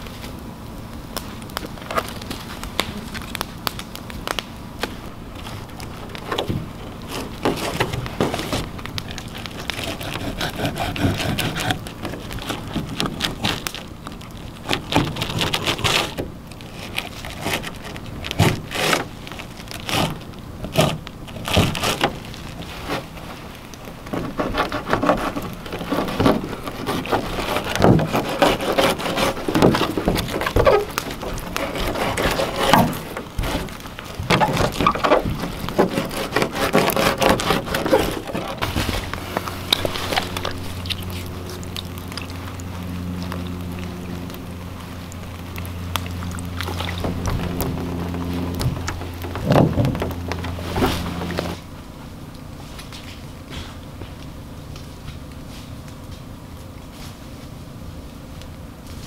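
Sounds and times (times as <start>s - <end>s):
campfire crackling: 0.0s - 59.0s
knife slicing and scraping fish: 24.3s - 33.8s, 34.4s - 42.2s.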